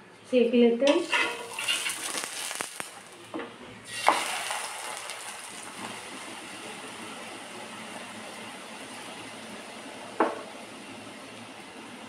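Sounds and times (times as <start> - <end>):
ghee sizzling on a hot pan: 0.9 - 12.0.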